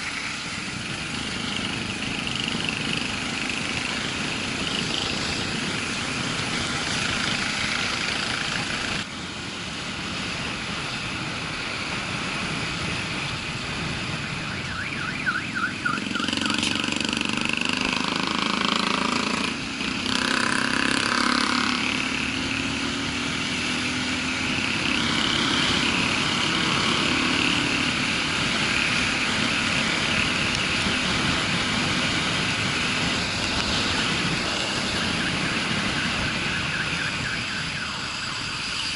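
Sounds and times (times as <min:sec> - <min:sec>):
motorcycle engine: 0:00.0 - 0:38.9
wind noise: 0:19.4 - 0:38.9.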